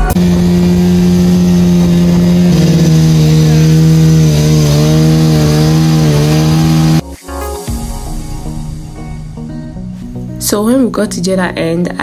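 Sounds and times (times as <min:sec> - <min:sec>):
outboard motor running at speed: 0:00.0 - 0:07.0.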